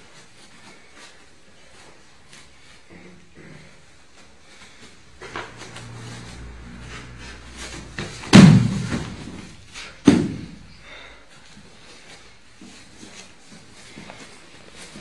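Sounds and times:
scuffs of feet and cloth: 0.0s - 3.1s, 11.3s - 15.0s
body thudding onto mat: 8.0s - 10.6s.

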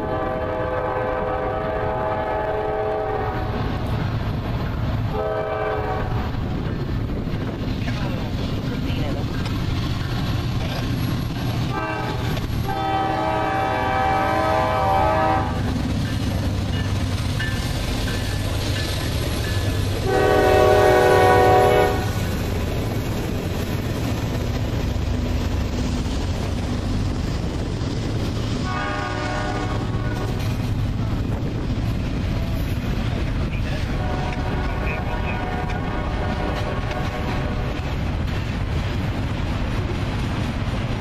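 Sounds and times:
train horn blowing: 0.0s - 3.7s, 5.1s - 6.3s, 11.7s - 15.7s, 20.0s - 22.3s, 28.6s - 30.5s, 33.8s - 37.8s
freight cars rumbling and clattering: 3.4s - 41.0s.

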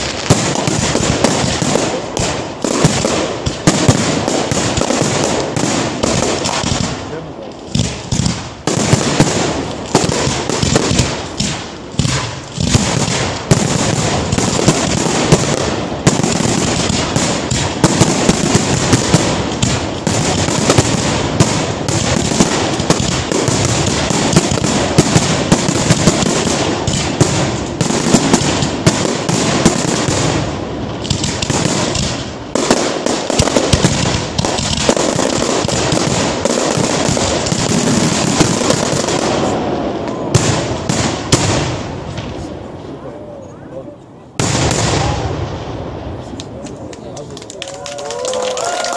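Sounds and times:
firework bangs: 0.0s - 43.0s, 44.3s - 48.9s
firework crackling: 0.0s - 43.0s, 44.3s - 48.9s.

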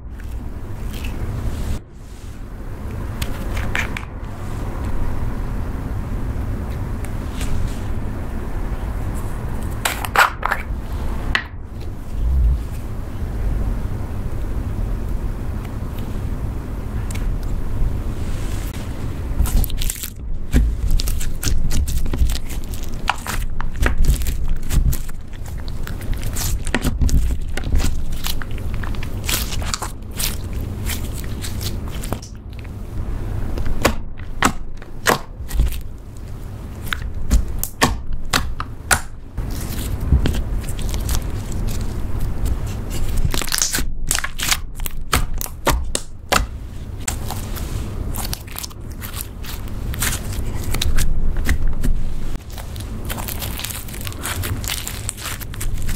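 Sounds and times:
slime squelching: 18.4s - 32.8s, 33.5s - 55.9s.

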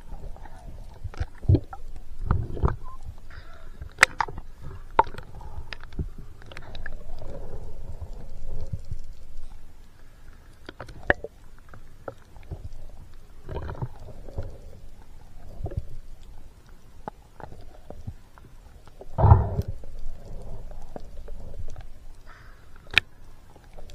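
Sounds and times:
muffled underwater water sloshing: 0.0s - 23.9s.

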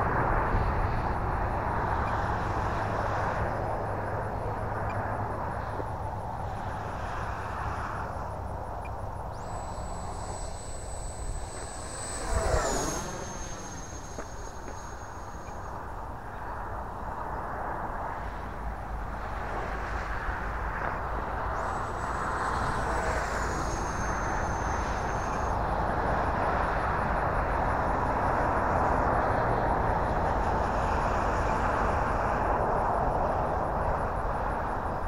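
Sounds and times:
model jet fan whine: 0.0s - 35.0s
rushing air: 6.2s - 16.8s.

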